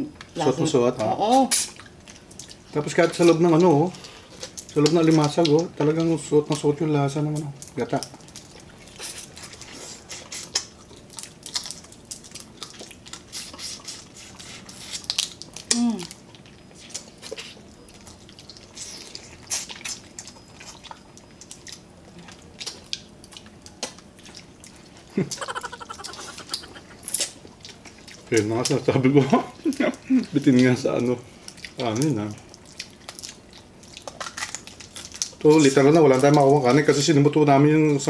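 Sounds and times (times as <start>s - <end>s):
chewing and sucking: 1.5s - 6.1s, 7.6s - 28.8s, 29.6s - 36.5s.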